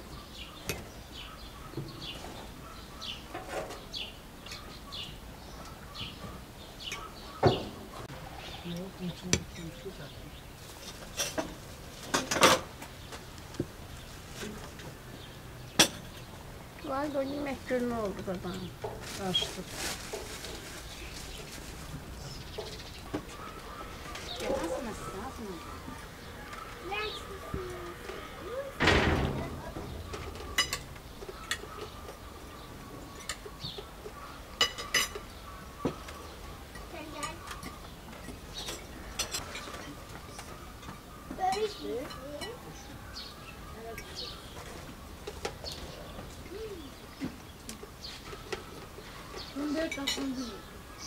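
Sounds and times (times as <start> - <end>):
kitchenware knocking and clattering: 7.4 - 7.9, 28.8 - 32.0.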